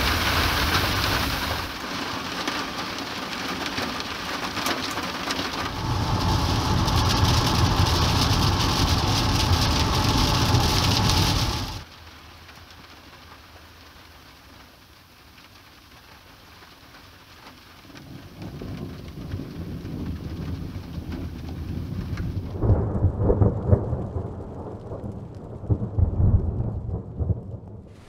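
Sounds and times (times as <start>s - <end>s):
thunder rumbling and cracking: 0.0s - 1.9s, 4.5s - 11.9s, 17.9s - 28.0s
rain hiss: 0.0s - 26.4s.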